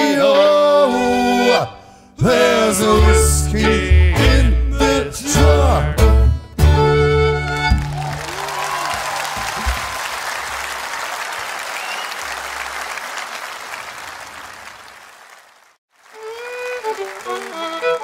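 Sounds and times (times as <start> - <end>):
fiddle tune: 0.0 - 8.2, 16.0 - 18.0
audience applauding: 7.4 - 18.0.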